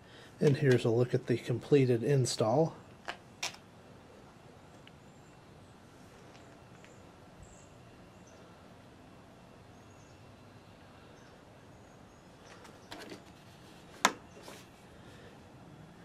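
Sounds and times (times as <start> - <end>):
faint bird chirps: 4.5 - 8.7, 9.4 - 13.0.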